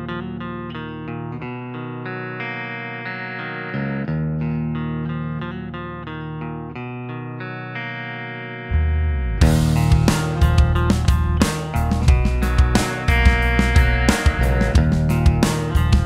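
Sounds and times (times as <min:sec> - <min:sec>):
guitar playing: 0:00.0 - 0:16.0
low bass: 0:08.7 - 0:16.0.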